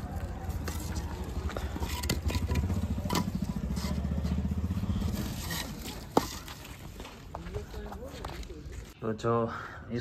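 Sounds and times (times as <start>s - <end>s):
bricks clinking and knocking: 0.6s - 3.3s
small engine running: 1.3s - 5.8s.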